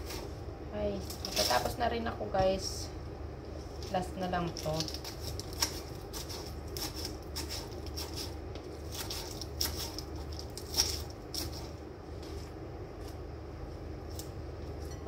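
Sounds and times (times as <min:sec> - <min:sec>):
steady low hum: 0:00.0 - 0:15.0
knife slicing lettuce on board: 0:04.6 - 0:11.7.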